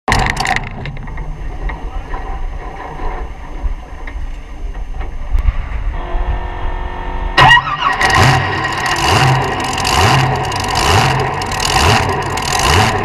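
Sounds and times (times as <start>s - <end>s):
mechanical clicks and rattling: 0.1s - 1.8s, 8.0s - 13.0s
low rumble: 0.1s - 13.0s
engine starter whine: 5.9s - 13.0s.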